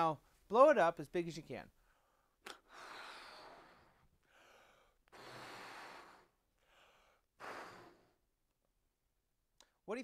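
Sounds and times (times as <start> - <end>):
faint breaths: 1.8 - 8.3
man blowing up balloon: 2.4 - 4.1, 5.0 - 8.3.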